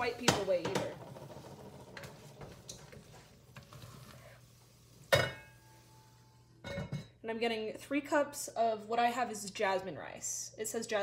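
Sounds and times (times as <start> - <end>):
wooden spoon scraping paste in pot: 1.2 - 5.1
cookware clank: 5.1 - 5.6, 6.6 - 7.2.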